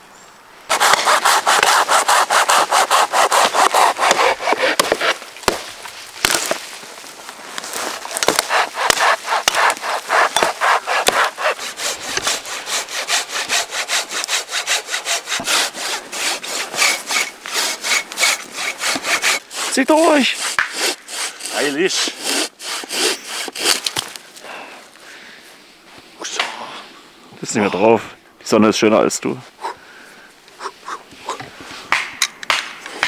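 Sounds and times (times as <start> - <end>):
hand saw cutting wood: 0.7 - 5.6, 7.7 - 24.1.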